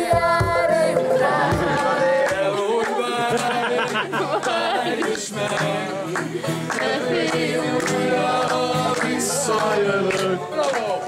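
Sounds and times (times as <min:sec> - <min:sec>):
group of people singing: 0:00.0 - 0:11.0
strummed guitar: 0:00.0 - 0:11.0.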